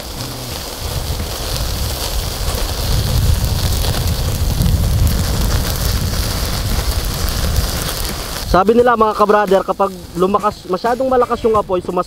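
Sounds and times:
low rumble: 0:00.0 - 0:08.7
butter sizzling on grill: 0:00.0 - 0:12.0
charcoal fire crackling: 0:00.0 - 0:12.0.

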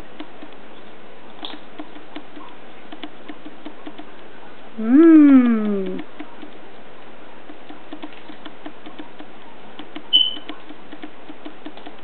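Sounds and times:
parrot squeak: 0:10.1 - 0:10.5.

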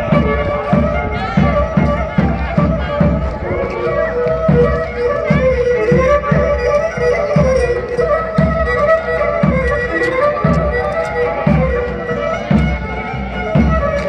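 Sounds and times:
fiddle playing melody: 0:00.0 - 0:14.0
low beat: 0:00.0 - 0:14.0.

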